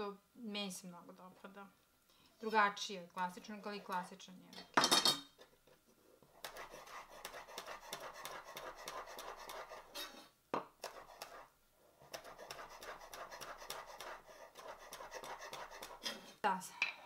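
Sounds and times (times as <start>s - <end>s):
knife chopping herbs on wooden board: 6.4s - 9.8s, 12.1s - 16.1s.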